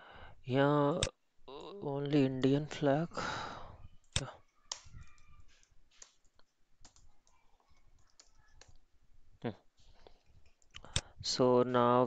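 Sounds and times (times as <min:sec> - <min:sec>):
mouse clicks: 0:04.0 - 0:08.8
keyboard keystrokes: 0:04.1 - 0:07.4.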